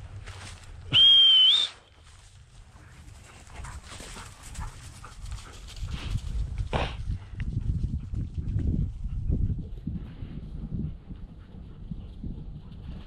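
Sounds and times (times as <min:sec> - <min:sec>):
dog whistle blast: 0:00.9 - 0:01.8
dog panting: 0:02.8 - 0:13.0.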